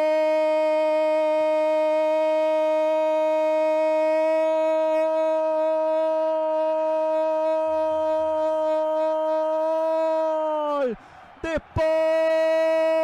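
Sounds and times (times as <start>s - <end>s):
commentator shouting goal: 4.5s - 13.0s.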